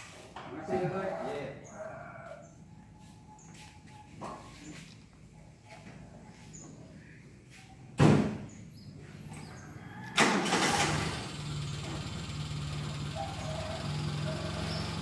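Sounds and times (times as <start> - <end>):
engine starting and idling: 9.3 - 15.0.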